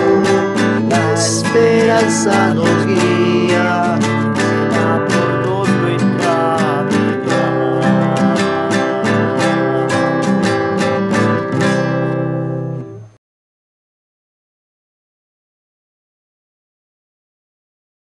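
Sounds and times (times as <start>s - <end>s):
strummed acoustic guitar hymn: 0.0s - 13.2s.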